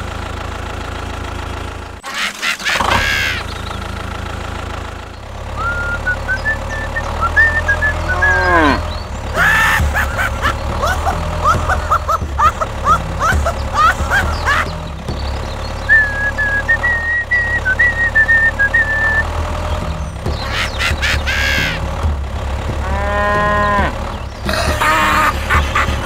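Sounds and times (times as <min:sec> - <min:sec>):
tractor engine running: 0:00.0 - 0:26.0
cattle mooing: 0:07.7 - 0:09.5, 0:22.8 - 0:24.0.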